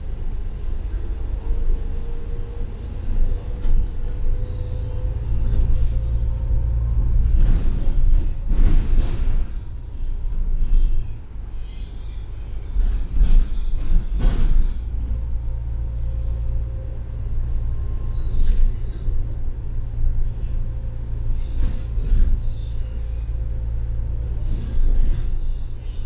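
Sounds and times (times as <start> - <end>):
bus engine and road rumble: 0.0 - 26.0
knocks and rattles: 7.2 - 9.7, 12.8 - 15.3.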